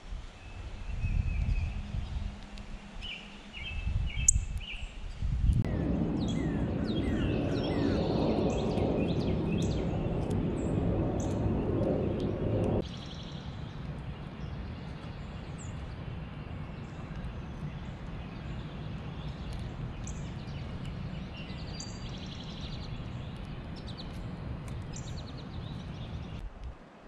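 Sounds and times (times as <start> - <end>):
outdoor background noise: 0.0 - 27.0
wild birds chirping: 0.4 - 26.4
steady low rumble: 0.7 - 4.6, 5.2 - 26.7.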